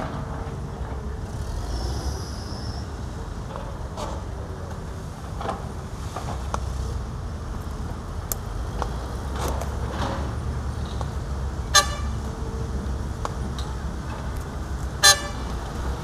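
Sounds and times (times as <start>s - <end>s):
diesel machinery rumbling: 0.0s - 16.0s
vehicle horn toot: 11.7s - 12.2s, 15.0s - 15.5s.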